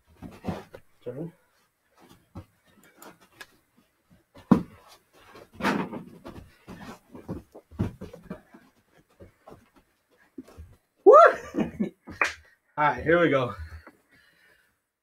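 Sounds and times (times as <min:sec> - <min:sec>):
sneakers shuffling on carpet: 0:00.1 - 0:11.0.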